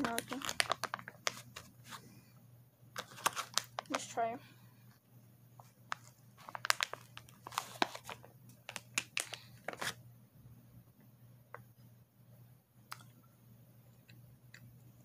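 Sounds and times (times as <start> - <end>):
plastic wrapper crinkling: 0.0 - 2.0, 3.0 - 4.1, 5.6 - 10.0.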